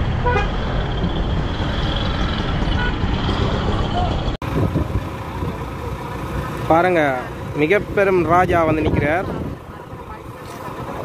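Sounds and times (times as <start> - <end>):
auto-rickshaw engines: 0.0 - 11.0
heavy low traffic rumble: 0.0 - 11.0
motorbike engines: 0.0 - 11.0
crowd voices: 8.2 - 11.0.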